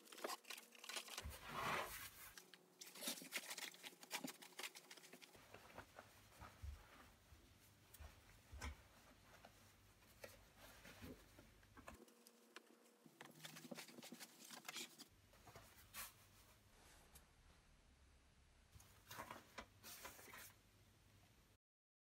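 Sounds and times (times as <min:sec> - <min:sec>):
fabric rustling and scratching: 0:00.0 - 0:11.6.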